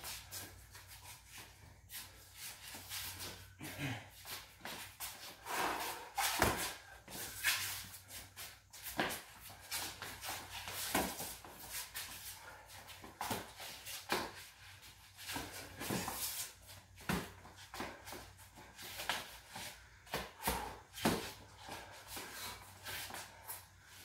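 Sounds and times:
sneakers shuffling: 0:00.0 - 0:24.0
boxing gloves slapping and thudding: 0:05.5 - 0:07.6, 0:08.9 - 0:12.2, 0:13.0 - 0:14.5, 0:15.2 - 0:22.9.

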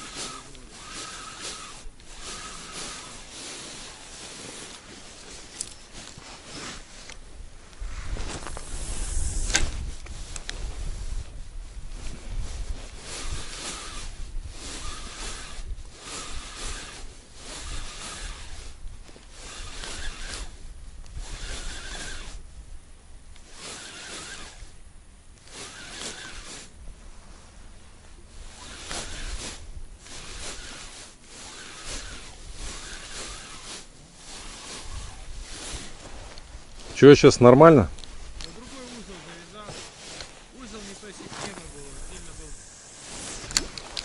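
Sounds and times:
fishing reel whirring: 0:00.0 - 0:05.9, 0:12.9 - 0:22.4, 0:23.4 - 0:26.8, 0:28.3 - 0:36.1, 0:38.0 - 0:44.0.

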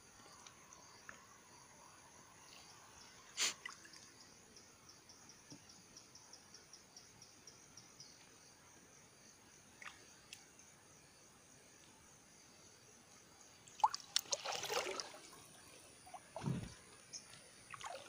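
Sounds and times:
river ambience: 0:00.0 - 0:18.0.

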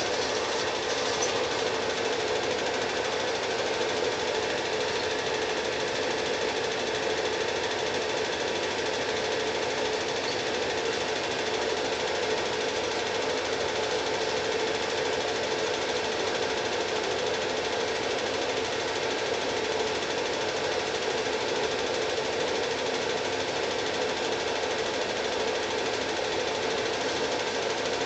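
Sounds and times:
projector hum: 0:00.0 - 0:16.9
film projector rattling: 0:00.0 - 0:28.0.

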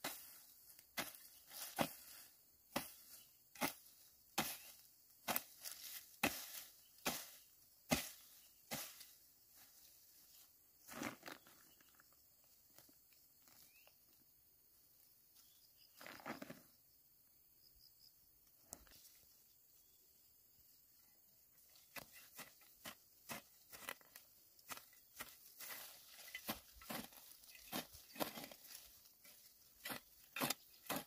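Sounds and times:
hoe striking soil: 0:00.0 - 0:09.2, 0:21.9 - 0:31.0.

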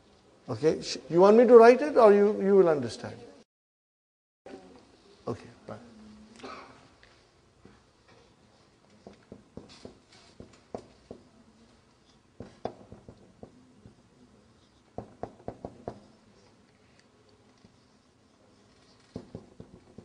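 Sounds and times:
marker pen tapping on whiteboard: 0:08.9 - 0:11.3, 0:12.4 - 0:14.0, 0:14.9 - 0:16.1, 0:19.0 - 0:20.0.

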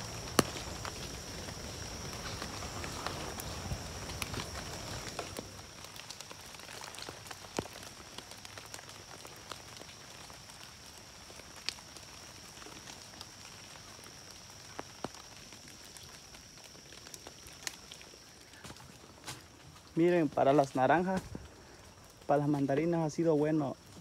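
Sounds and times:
footsteps through wet leaves: 0:00.0 - 0:24.0
rustles and snaps of plants: 0:00.0 - 0:24.0.

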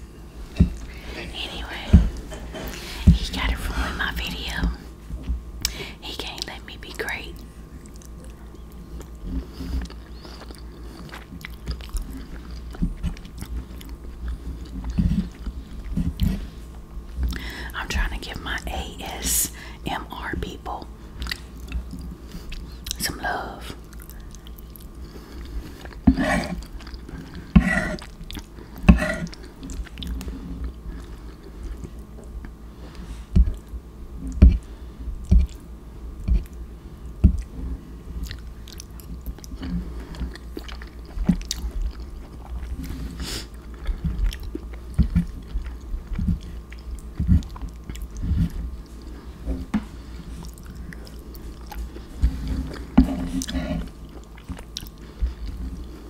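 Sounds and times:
person chewing food: 0:07.4 - 0:17.7, 0:20.8 - 0:23.0, 0:23.8 - 0:56.0.

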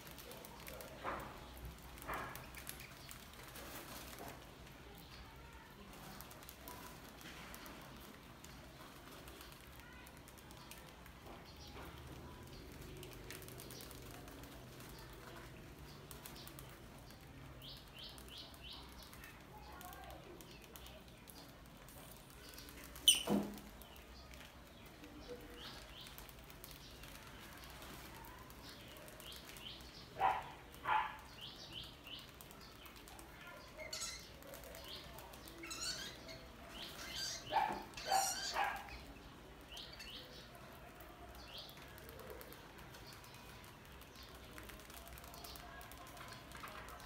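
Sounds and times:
mice squeaking: 0:21.9 - 0:39.2.

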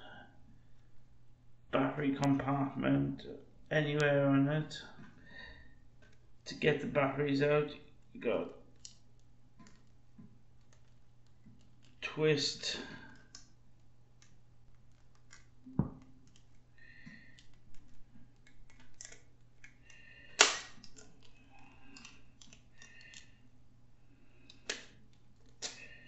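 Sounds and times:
small plastic clicks: 0:08.7 - 0:12.0, 0:13.0 - 0:23.4, 0:24.3 - 0:26.0
sharp loud click: 0:20.4 - 0:20.7.

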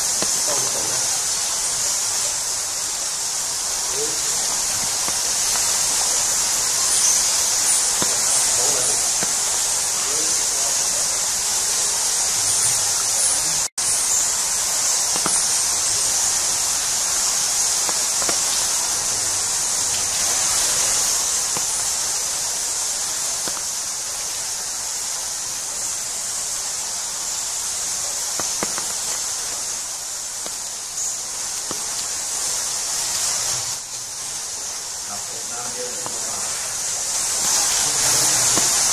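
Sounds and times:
high-pitched hiss: 0:00.0 - 0:38.9
faint crackles: 0:03.4 - 0:10.6, 0:14.1 - 0:24.7, 0:27.6 - 0:38.9.

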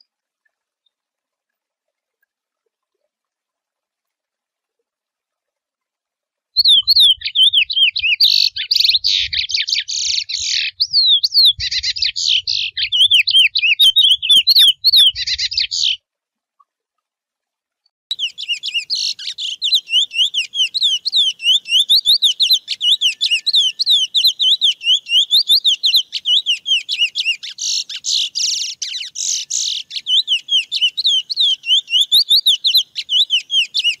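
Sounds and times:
finch singing: 0:06.6 - 0:16.0, 0:18.1 - 0:34.0.

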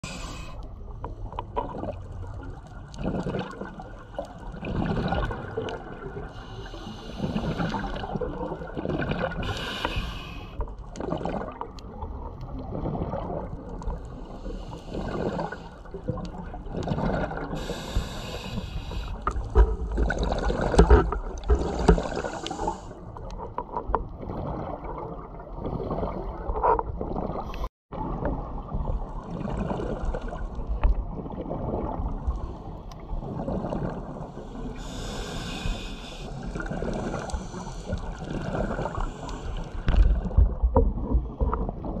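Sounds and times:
regulator inhale hiss: 0:00.0 - 0:00.6, 0:06.3 - 0:07.9, 0:09.4 - 0:10.6, 0:14.2 - 0:15.8, 0:17.6 - 0:19.3, 0:22.1 - 0:23.0, 0:34.4 - 0:39.9
exhaled bubbles gurgling: 0:00.0 - 0:42.0.

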